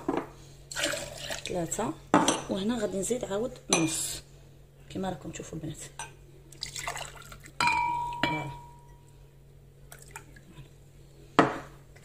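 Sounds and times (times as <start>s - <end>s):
water pouring into jug: 0.7s - 1.6s, 6.5s - 7.6s, 9.9s - 10.6s
glass ringing against jug: 7.6s - 9.0s.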